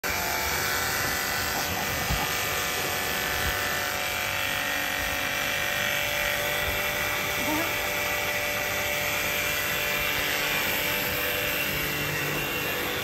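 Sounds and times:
pressure washer motor buzzing: 0:00.0 - 0:13.0
water jet hissing: 0:00.5 - 0:04.1.

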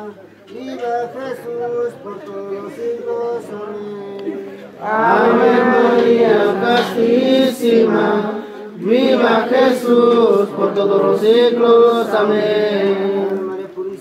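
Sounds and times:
voices singing a chanted hymn: 0:00.0 - 0:14.0.

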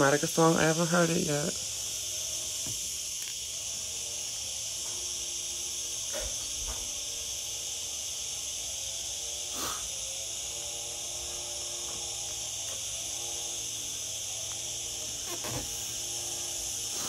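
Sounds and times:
high-pitched hiss: 0:00.0 - 0:17.0.

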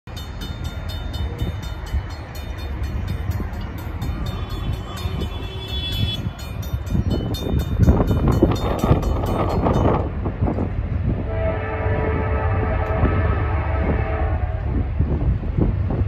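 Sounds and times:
low rumble of train: 0:00.0 - 0:16.0
crossing bell ringing: 0:00.1 - 0:10.5.

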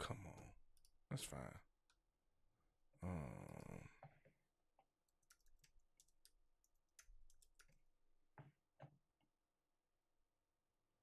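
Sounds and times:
keyboard typing: 0:05.1 - 0:07.8.

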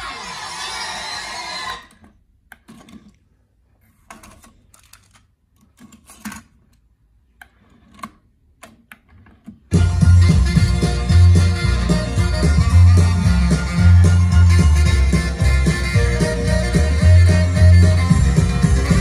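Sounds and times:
music playback from cassette: 0:09.7 - 0:19.0.

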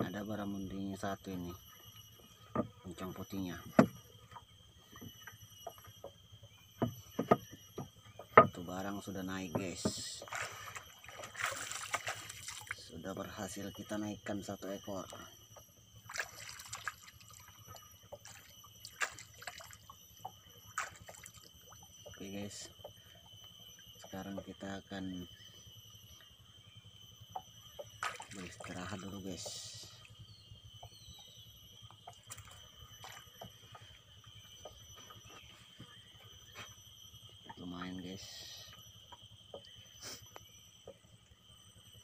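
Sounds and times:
thin steady high tone: 0:00.0 - 0:42.0
water dripping and splashing: 0:10.2 - 0:12.9, 0:16.1 - 0:20.0, 0:20.8 - 0:22.2, 0:28.0 - 0:28.8, 0:32.1 - 0:33.5.

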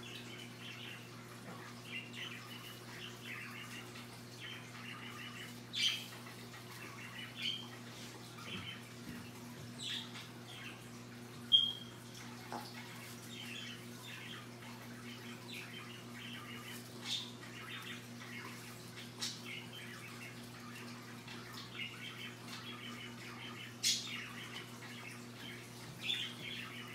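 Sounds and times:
parrot squeaks and chirps: 0:11.5 - 0:12.0.

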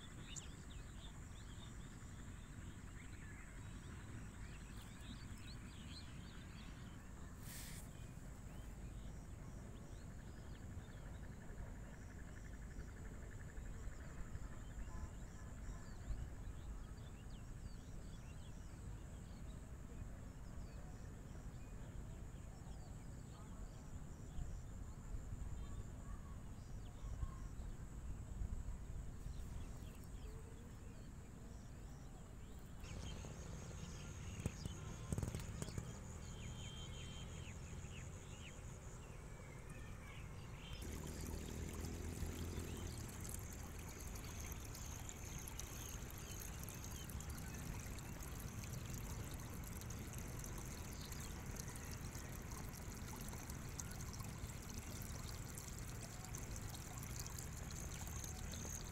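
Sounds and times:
water trickling and pouring: 0:03.6 - 0:11.2, 0:32.4 - 0:58.9.

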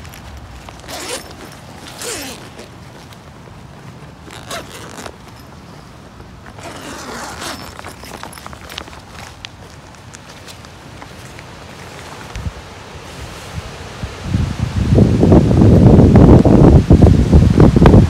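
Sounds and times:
zipper rasping open: 0:00.6 - 0:03.2, 0:03.8 - 0:05.8, 0:06.4 - 0:09.4.

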